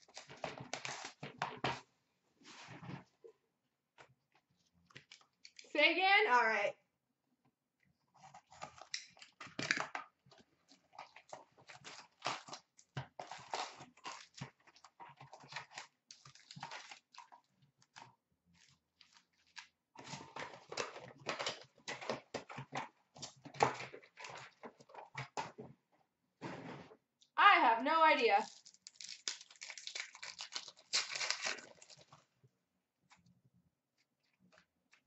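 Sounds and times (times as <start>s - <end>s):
wrappers crinkling and rustling: 10.8s - 18.0s, 28.4s - 32.2s.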